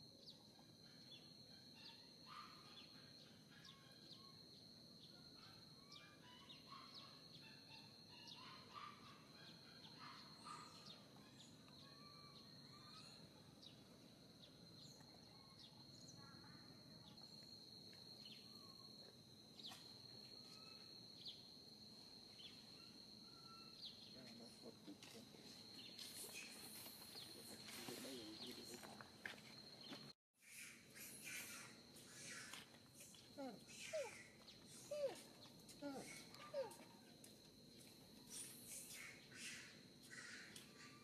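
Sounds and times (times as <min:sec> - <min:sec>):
faint chirps: 0:00.2 - 0:37.1, 0:37.7 - 0:41.0
high-pitched insect drone: 0:14.4 - 0:41.0.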